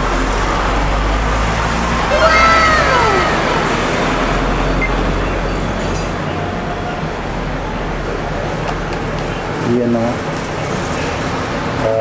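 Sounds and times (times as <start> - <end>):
computer fans humming: 0.0 - 5.5
vehicle passing: 0.0 - 5.9
road traffic: 0.0 - 12.0.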